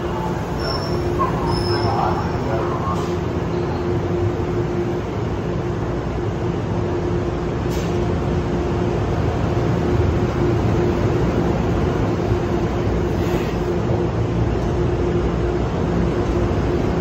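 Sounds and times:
constant hum: 0.0 - 17.0.

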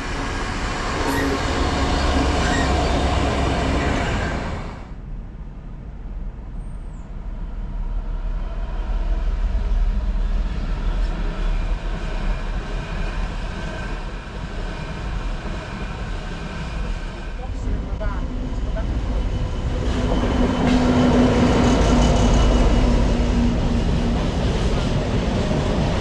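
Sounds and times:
locomotive engine rumble: 0.0 - 5.0.

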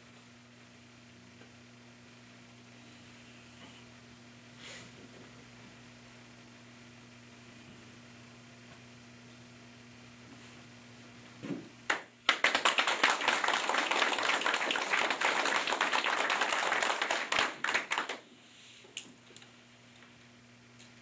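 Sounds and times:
audience applauding: 11.9 - 18.2.

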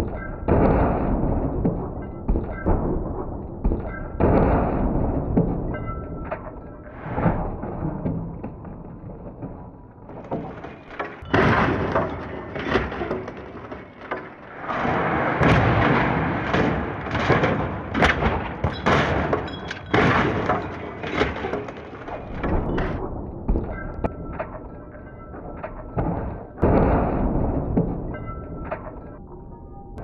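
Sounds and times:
metal crunching: 6.5 - 24.8
glass breaking: 10.2 - 23.0.

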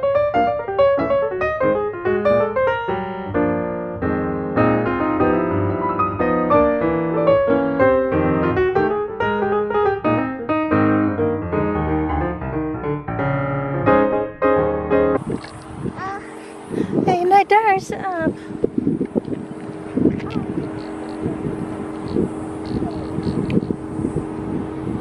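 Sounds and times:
piano music: 0.0 - 15.4.

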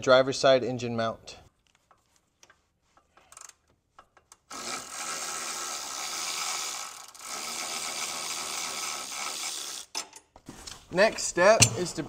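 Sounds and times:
power ratchet spinning bolt: 3.2 - 10.1.

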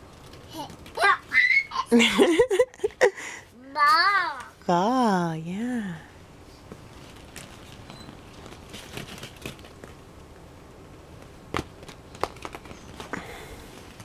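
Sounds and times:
plastic balls clacking and rustling: 6.9 - 10.0, 11.6 - 13.2.

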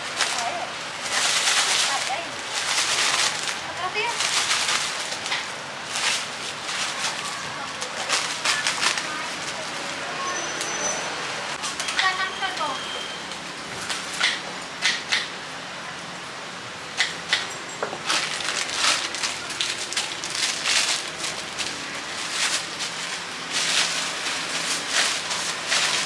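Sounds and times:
plastic bag crinkling: 0.0 - 9.9, 17.9 - 26.0.

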